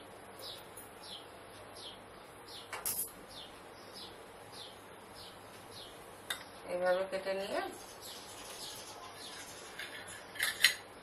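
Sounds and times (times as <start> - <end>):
bird chirping: 0.4 - 7.0, 7.6 - 9.8.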